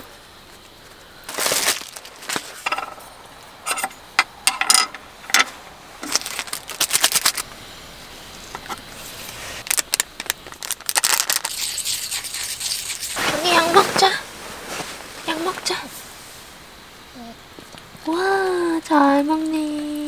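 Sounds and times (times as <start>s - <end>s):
paper crinkling: 0.9s - 2.8s, 6.0s - 7.4s, 9.1s - 11.8s.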